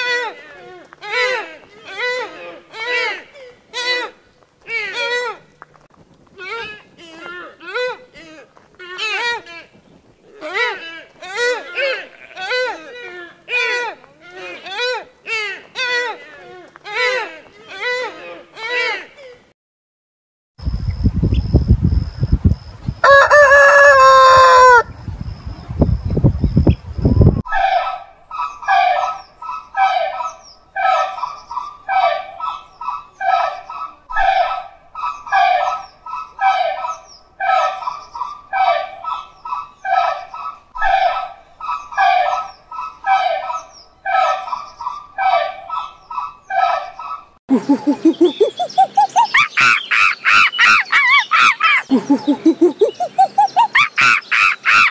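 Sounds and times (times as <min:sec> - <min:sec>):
rumbling microphone noise: 0:20.6 - 0:23.0, 0:24.9 - 0:27.4
rooster crowing: 0:23.0 - 0:24.9.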